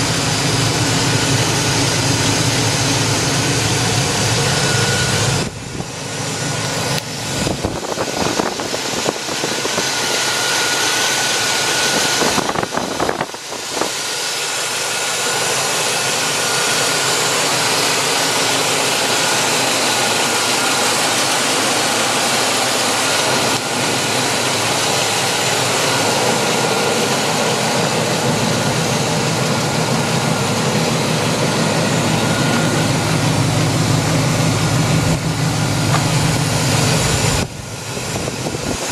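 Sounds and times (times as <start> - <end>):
engine idling: 0.0 - 38.9
thin steady whine: 0.0 - 38.9.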